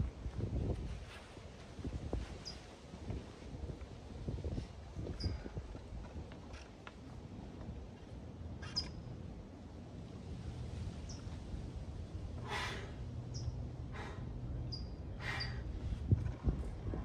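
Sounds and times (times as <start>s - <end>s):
man exhaling forcefully: 12.4s - 13.0s.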